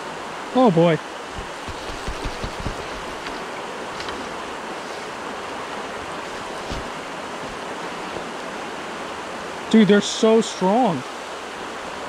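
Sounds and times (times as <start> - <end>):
river water rushing: 0.0 - 12.0
low thumps on microphone: 1.3 - 3.4.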